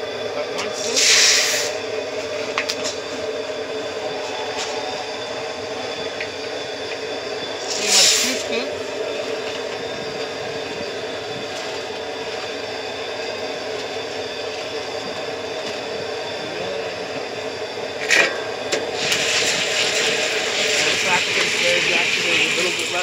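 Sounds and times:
gas burner running: 0.0 - 23.0.

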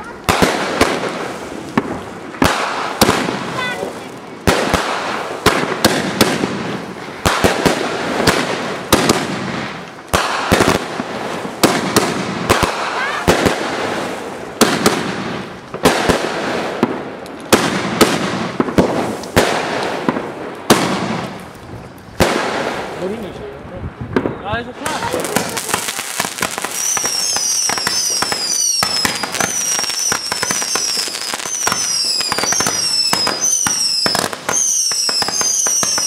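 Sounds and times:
firework hissing and crackling: 0.0 - 36.0
firework cake bangs: 24.1 - 36.0.

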